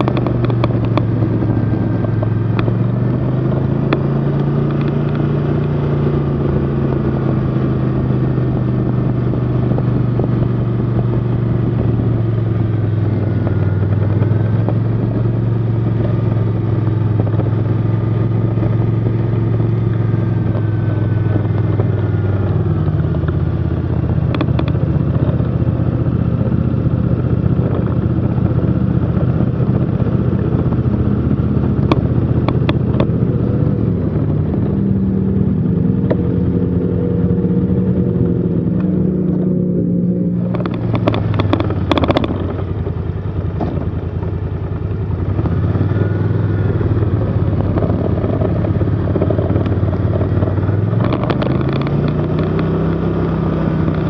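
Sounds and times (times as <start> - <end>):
snowmobile engine running: 18.3 - 52.7.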